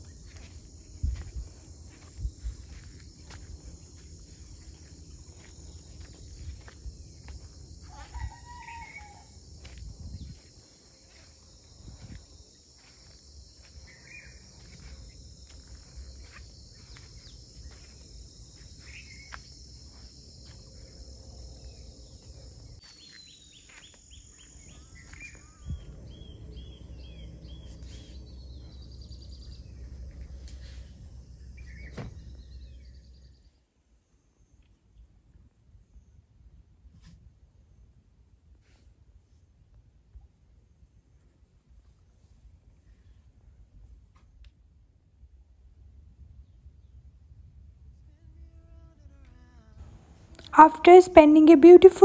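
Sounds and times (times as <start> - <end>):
wind rumble on microphone: 0.0 - 5.4, 6.0 - 12.5, 25.4 - 27.6
insects droning: 0.0 - 52.0.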